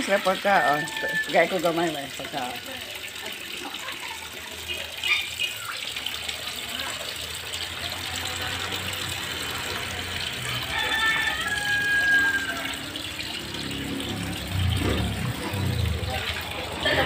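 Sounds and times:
water pouring from hose: 0:00.0 - 0:17.0
fish splashing water surface: 0:02.6 - 0:17.0.

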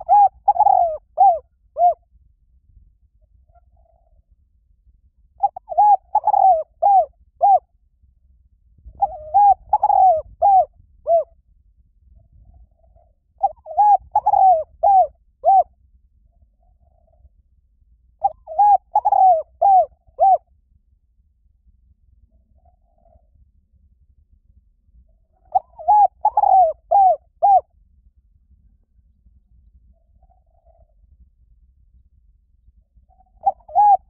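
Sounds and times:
dove cooing: 0:00.0 - 0:02.0, 0:03.5 - 0:04.2, 0:05.4 - 0:07.7, 0:08.9 - 0:11.3, 0:12.8 - 0:15.7, 0:18.2 - 0:20.5, 0:25.4 - 0:27.7, 0:30.2 - 0:30.9, 0:33.1 - 0:34.0.

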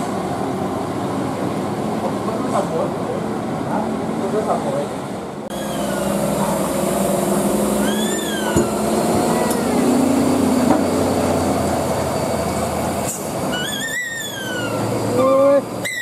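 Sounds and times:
truck engines humming: 0:00.0 - 0:16.0
high squeals: 0:05.5 - 0:06.2, 0:07.7 - 0:10.0, 0:13.4 - 0:16.0.

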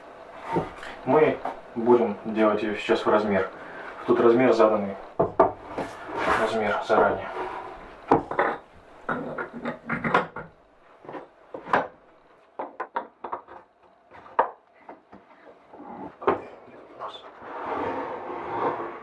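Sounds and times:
wooden knocks and taps: 0:12.6 - 0:15.2.

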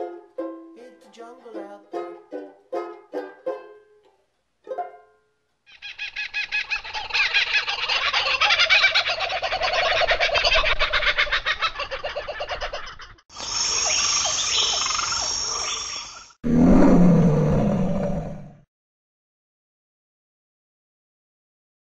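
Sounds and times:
bird chirps: 0:13.4 - 0:16.4
rapid pulsing bird call: 0:13.4 - 0:16.4.

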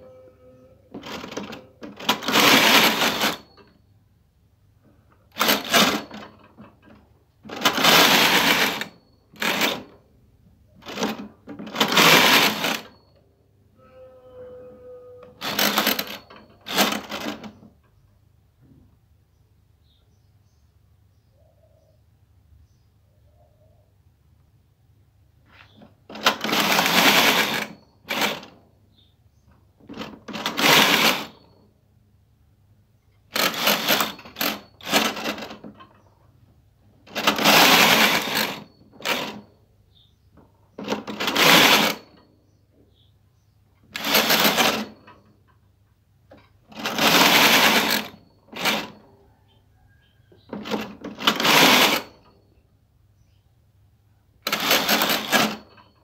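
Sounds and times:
knitting machine carriage rasping: 0:00.9 - 0:03.8, 0:05.3 - 0:10.0, 0:10.8 - 0:13.2, 0:15.2 - 0:17.8, 0:25.8 - 0:28.6, 0:29.8 - 0:31.6, 0:33.2 - 0:36.2, 0:37.0 - 0:39.5, 0:40.8 - 0:42.3, 0:43.8 - 0:45.4, 0:46.3 - 0:49.4, 0:50.4 - 0:52.4, 0:54.4 - 0:56.0
knitting machine click: 0:44.0 - 0:45.2, 0:54.4 - 0:56.0.

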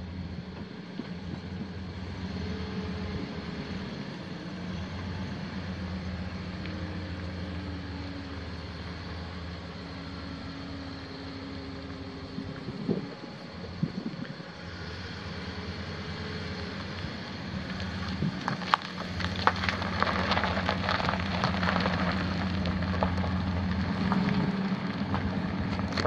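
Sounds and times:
truck engine running: 0:00.0 - 0:26.0.

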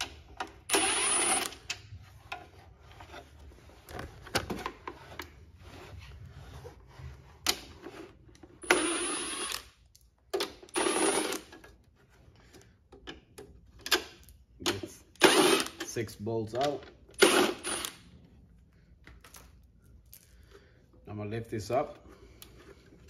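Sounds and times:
tool and parts clicking and knocking: 0:00.0 - 0:02.6, 0:07.4 - 0:18.0
power driver whirring: 0:00.7 - 0:01.7, 0:08.6 - 0:09.6, 0:15.1 - 0:15.9, 0:17.1 - 0:18.0.

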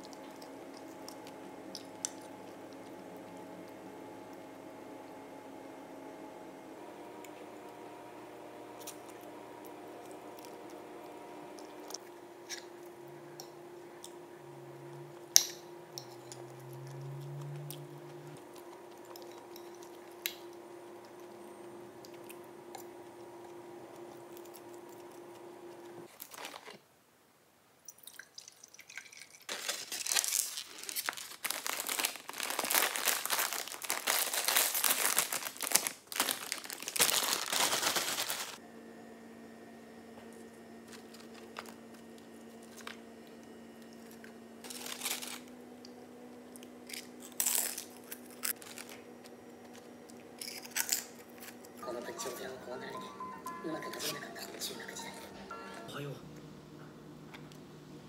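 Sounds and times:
chip bag crinkling: 0:26.1 - 0:26.8, 0:29.1 - 0:38.6, 0:44.0 - 0:46.0, 0:46.7 - 0:51.8.

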